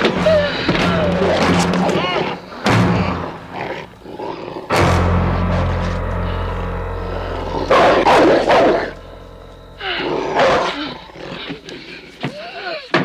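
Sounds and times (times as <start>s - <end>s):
steady low hum: 2.5s - 12.2s.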